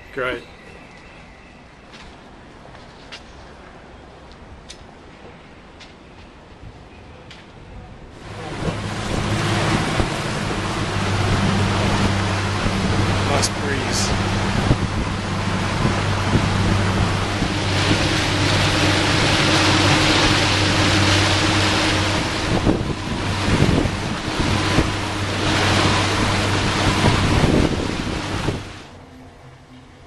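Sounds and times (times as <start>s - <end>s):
wind buffeting microphone: 7.8s - 28.9s
water rushing from wake: 8.2s - 28.9s
boat engine drone: 8.2s - 30.0s.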